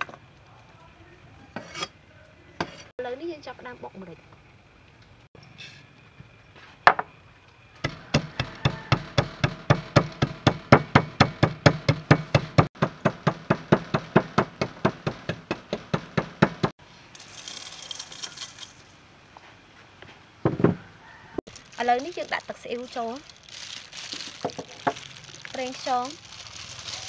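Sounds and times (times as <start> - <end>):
pestle knocking in wooden mortar: 7.8 - 16.7
seeds pouring into metal bowl: 17.0 - 19.0, 21.5 - 27.0.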